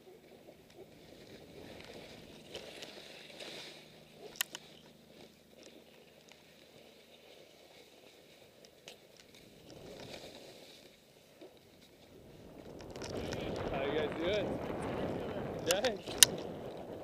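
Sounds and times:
skis sliding through snow: 0:09.4 - 0:15.5
sharp clicks: 0:15.6 - 0:16.5.

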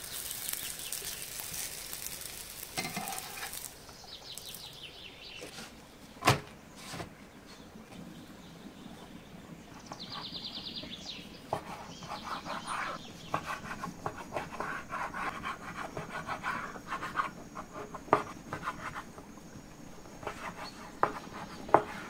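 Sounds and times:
rubbing and scratching: 0:00.0 - 0:03.7, 0:11.5 - 0:19.2, 0:20.2 - 0:22.0.

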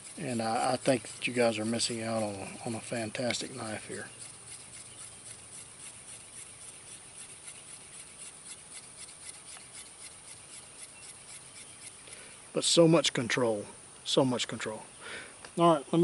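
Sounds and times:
knife whittling wood: 0:00.0 - 0:12.2.

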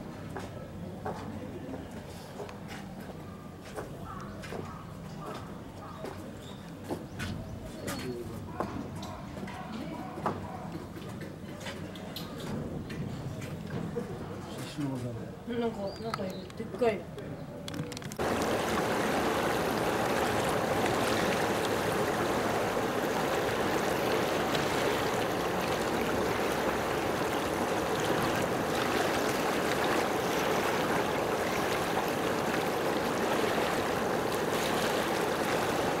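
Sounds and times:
rushing water: 0:18.2 - 0:36.0.

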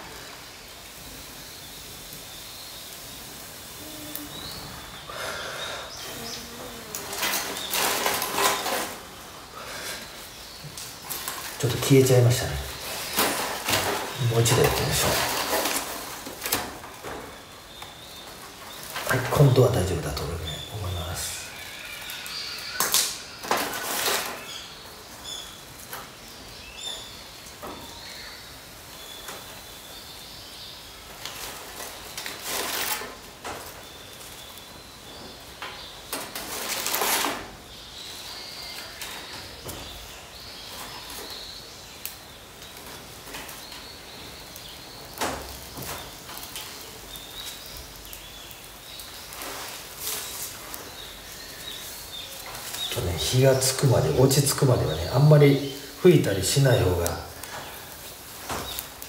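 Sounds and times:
small birds chirping: 0:00.0 - 0:59.0
twigs and paper rustling: 0:06.0 - 0:09.2, 0:10.6 - 0:22.2, 0:22.8 - 0:24.7, 0:31.0 - 0:59.0.

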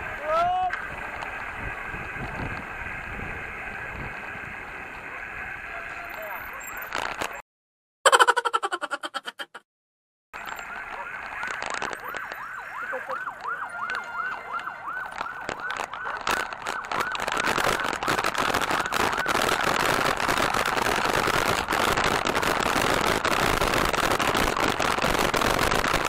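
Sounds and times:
wind on microphone: 0:00.0 - 0:05.6
electronic siren yelping: 0:00.2 - 0:07.4, 0:10.4 - 0:26.0.

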